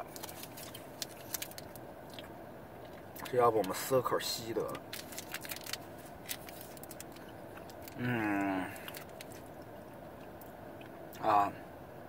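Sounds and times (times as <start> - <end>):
plastic wrapper crackling: 0.0 - 2.2, 4.6 - 8.0, 8.8 - 9.5
person humming mm: 8.0 - 8.8.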